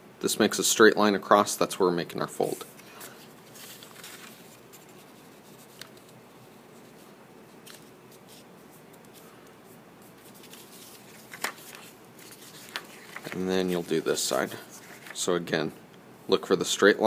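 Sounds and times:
paper rustling and scraping: 2.4s - 6.2s, 10.0s - 15.3s.

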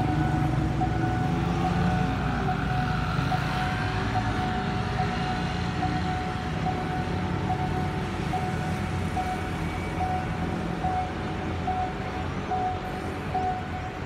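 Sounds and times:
level crossing alarm tone: 0.0s - 14.0s
road traffic rumble: 0.0s - 14.0s.

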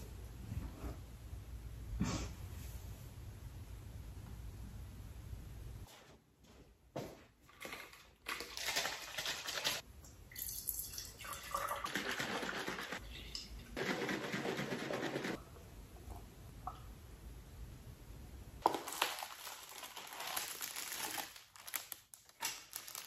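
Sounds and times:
milk pouring and splashing: 7.5s - 15.4s.

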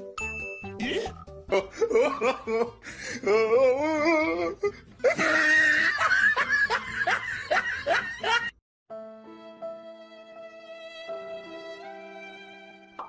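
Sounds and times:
person laughing: 0.8s - 8.5s
soft violin music: 8.9s - 13.0s.

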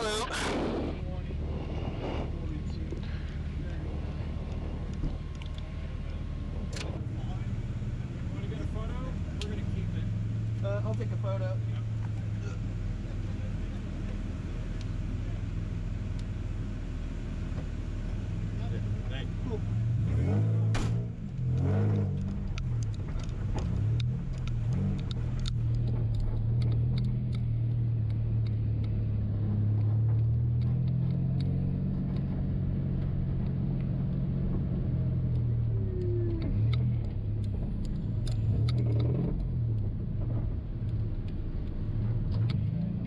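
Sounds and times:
car engine running: 0.0s - 43.0s
light clicks and rattles: 21.2s - 43.0s.

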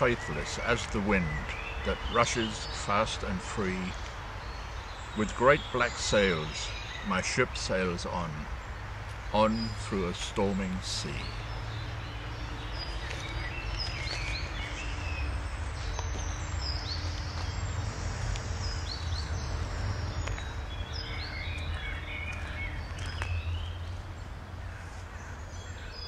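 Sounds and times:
steady low rumble: 0.0s - 25.5s
songbirds singing: 0.0s - 26.0s.

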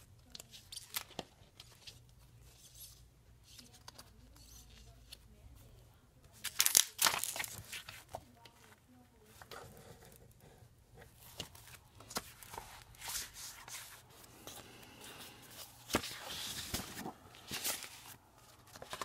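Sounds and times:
paper rustling and sliding: 11.2s - 19.0s.

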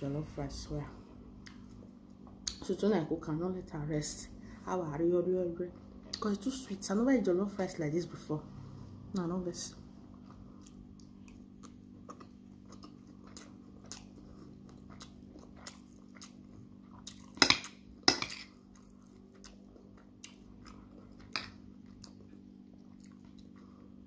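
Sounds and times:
soft chewing: 1.0s - 2.6s, 9.2s - 24.0s.

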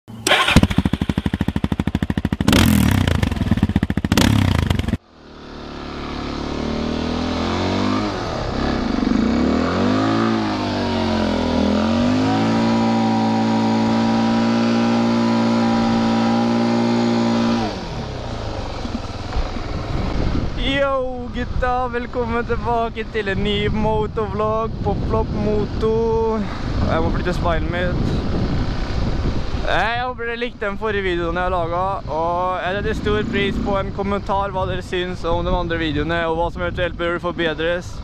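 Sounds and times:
motorcycle engine revving: 0.1s - 20.7s, 32.4s - 34.7s
motorcycle engine blasts: 0.1s - 30.0s, 30.6s - 37.2s.

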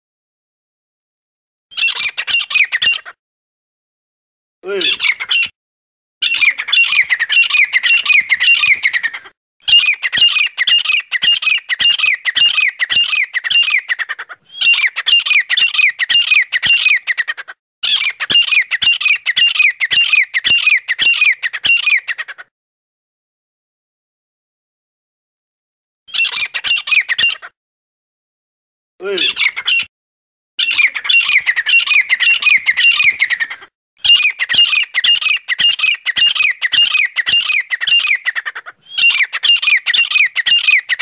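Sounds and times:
bird harsh squawking calls: 1.7s - 3.2s, 4.6s - 5.5s, 6.2s - 22.5s, 26.1s - 27.6s, 29.0s - 29.9s, 30.6s - 41.0s.

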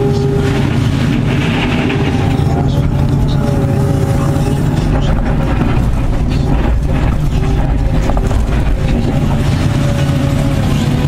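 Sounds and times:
excavator diesel engine: 0.0s - 11.0s
hydraulic whine: 0.0s - 11.0s.

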